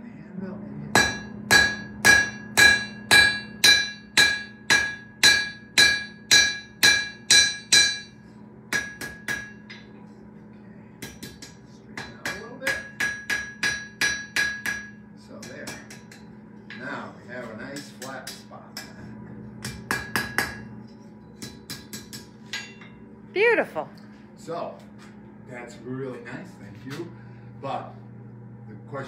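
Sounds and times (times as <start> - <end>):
hammer striking iron on anvil: 0.9 - 10.0, 11.0 - 17.0, 17.7 - 23.0.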